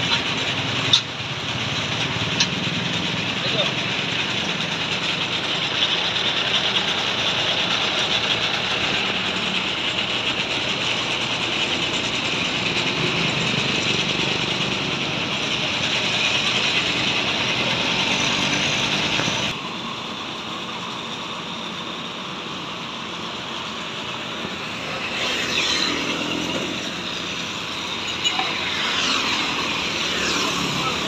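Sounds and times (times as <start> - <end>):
tow truck engine running: 0.0 - 31.0
wheel-lift operating: 0.0 - 31.0.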